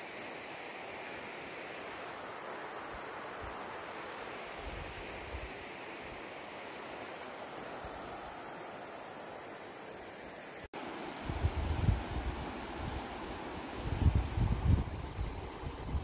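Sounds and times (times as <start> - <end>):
wind bumps on microphone: 11.2 - 13.0, 13.8 - 16.0.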